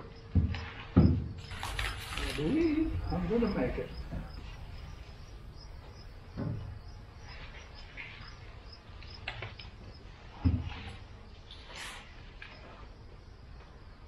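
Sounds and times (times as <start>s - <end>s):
insect chirping: 0.0s - 14.0s
light clicks of dry leaves: 1.5s - 3.4s.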